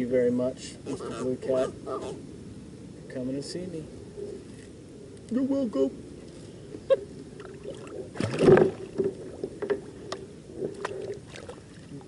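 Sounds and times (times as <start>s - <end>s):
water splashing: 7.4s - 12.0s.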